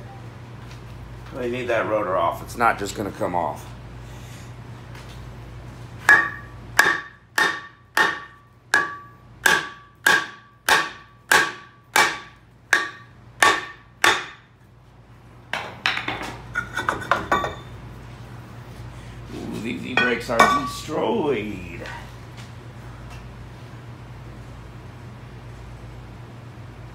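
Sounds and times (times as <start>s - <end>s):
hammer striking metal rotor: 6.1s - 14.4s, 20.0s - 20.8s.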